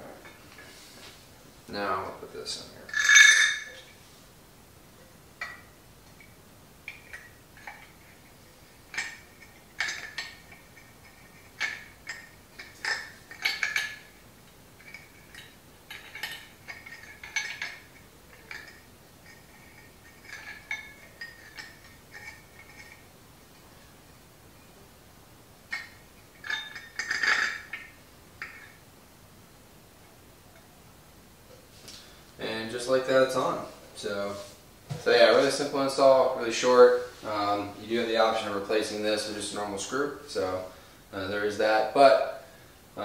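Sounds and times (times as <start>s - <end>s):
metal clank: 2.9s - 3.8s, 25.7s - 28.8s.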